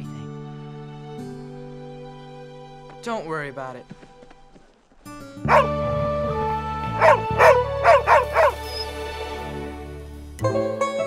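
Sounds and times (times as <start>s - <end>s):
background music with held chords: 0.0s - 3.8s, 5.2s - 11.0s
dog barking: 5.5s - 5.8s, 6.9s - 8.7s.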